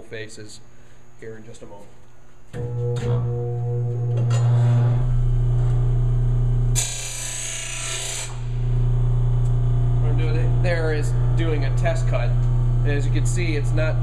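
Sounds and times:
grinder motor humming: 0:02.6 - 0:14.0.

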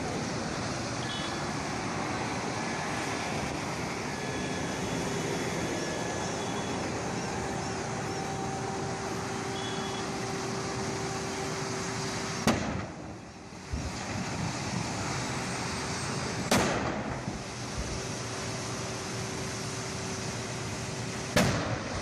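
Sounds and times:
gas tank explosions: 0:12.3 - 0:13.1, 0:16.4 - 0:17.3, 0:21.3 - 0:22.0.

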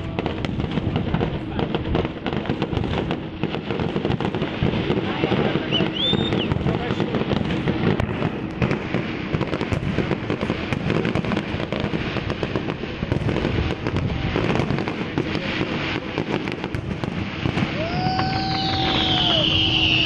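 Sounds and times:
fireworks bangs and crackles: 0:00.0 - 0:20.0
high falling whistle: 0:05.7 - 0:06.6, 0:17.8 - 0:20.0.

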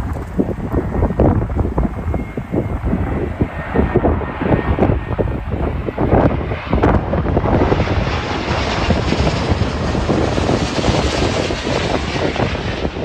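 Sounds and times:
jet airliner passing overhead: 0:00.0 - 0:13.0.

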